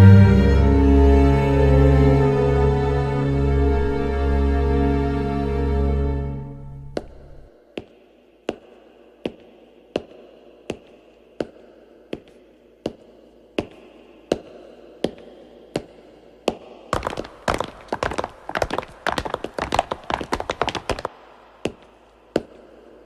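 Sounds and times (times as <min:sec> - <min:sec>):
footsteps on staircase: 0:06.9 - 0:23.0.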